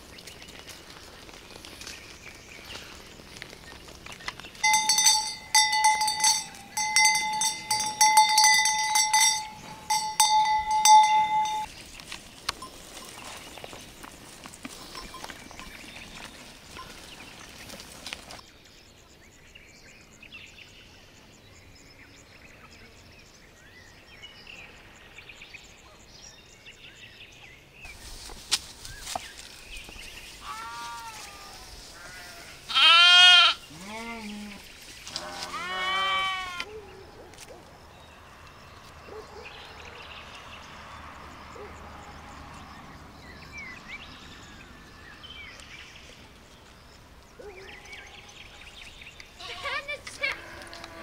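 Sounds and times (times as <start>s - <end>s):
faint outdoor background: 0.0s - 51.0s
young animals bleating: 30.4s - 36.7s, 49.4s - 51.0s.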